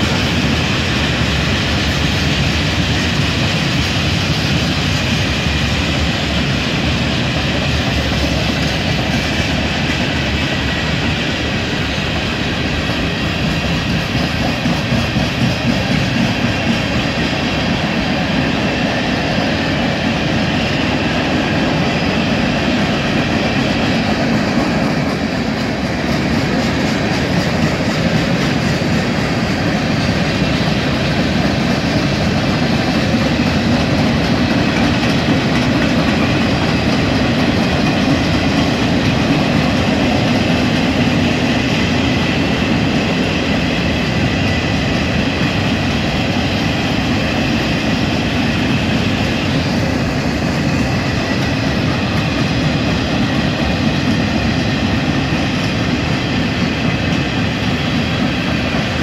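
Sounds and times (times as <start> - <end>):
freight train wheels clattering on rails: 0.0 - 59.0.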